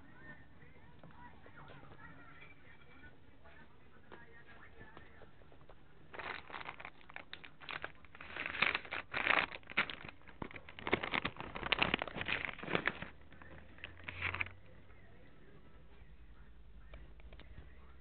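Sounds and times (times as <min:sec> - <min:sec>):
rustling and crinkling: 0:03.4 - 0:14.8.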